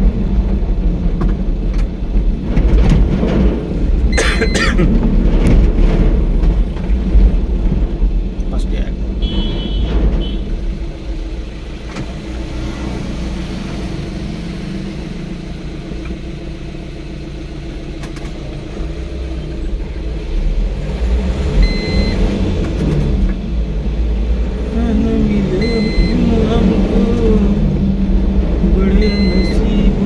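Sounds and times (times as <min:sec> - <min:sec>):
vehicle engine running: 0:00.0 - 0:30.0
short high beep: 0:29.0 - 0:29.8.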